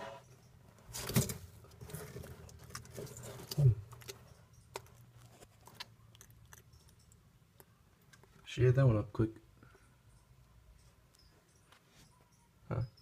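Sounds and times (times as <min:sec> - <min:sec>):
lizard chewing and crunching: 0:00.8 - 0:08.5.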